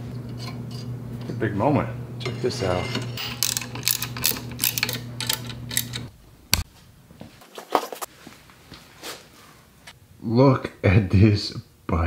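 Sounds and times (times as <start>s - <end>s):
steady low hum: 0.0s - 7.4s
ratchet wrench clicking: 3.2s - 6.1s.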